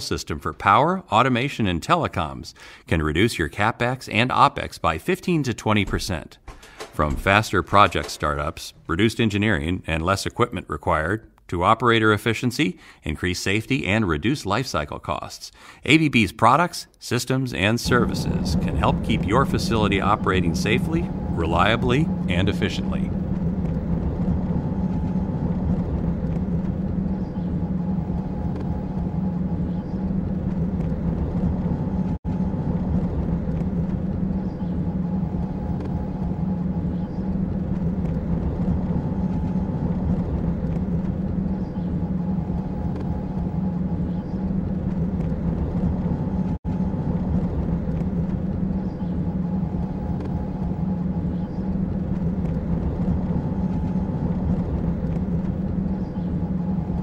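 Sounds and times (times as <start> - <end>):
low engine drone: 5.0 - 9.7, 17.8 - 57.0
faint steady tones: 17.8 - 57.0.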